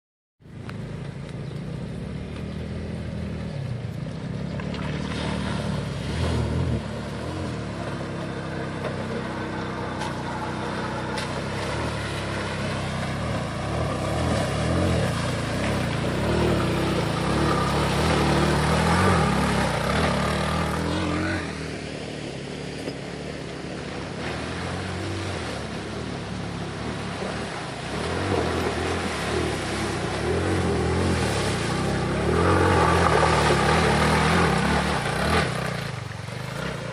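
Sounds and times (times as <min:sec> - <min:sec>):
water splashing from wheels: 0:00.4 - 0:36.9
vehicle engine revving: 0:00.7 - 0:22.4, 0:23.8 - 0:36.9.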